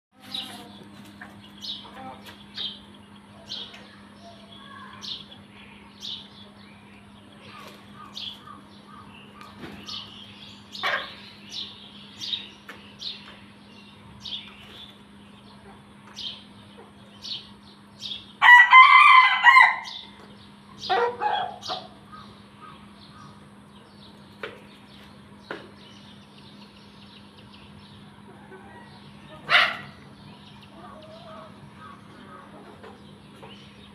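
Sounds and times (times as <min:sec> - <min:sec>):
chickens chirping and clucking: 0:00.2 - 0:33.9
rooster crowing: 0:18.4 - 0:20.1, 0:28.1 - 0:30.0.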